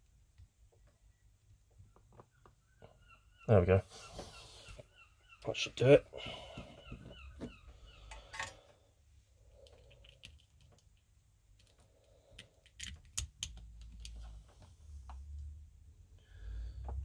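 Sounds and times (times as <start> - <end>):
fingers clicking and tapping cable: 9.6 - 14.3.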